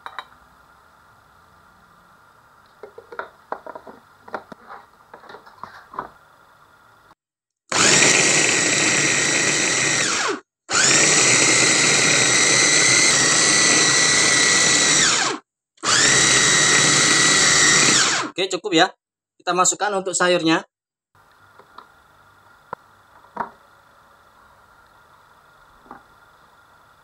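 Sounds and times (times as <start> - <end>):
electric food chopper motor whine: 7.7 - 18.3.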